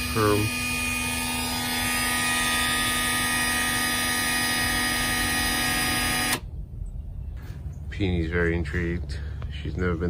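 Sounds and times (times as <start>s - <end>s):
electric door opener whining: 0.0s - 6.5s.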